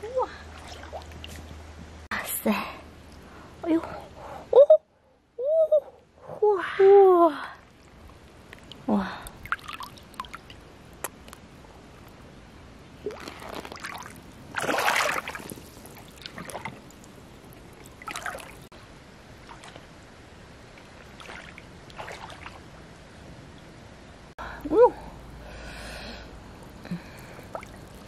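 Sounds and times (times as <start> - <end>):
stream water splashing: 0.4 - 1.7, 7.7 - 11.2, 13.0 - 23.0, 27.0 - 28.0.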